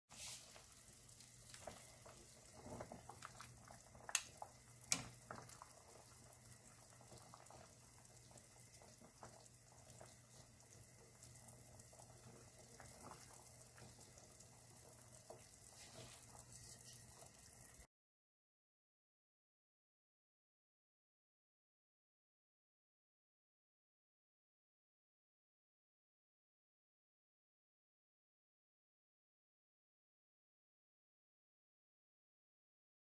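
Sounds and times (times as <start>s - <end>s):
broth bubbling in a pot: 0.1s - 17.9s.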